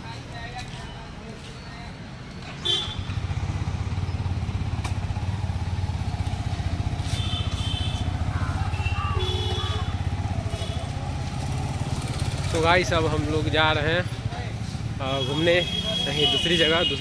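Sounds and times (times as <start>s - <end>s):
motorcycle engine starting and idling: 3.0s - 14.0s.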